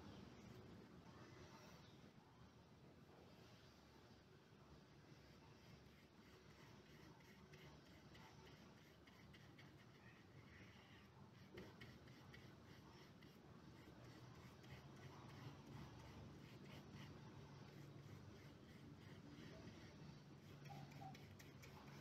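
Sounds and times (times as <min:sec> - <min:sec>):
paintbrush rubbing on paper: 0:05.1 - 0:22.0.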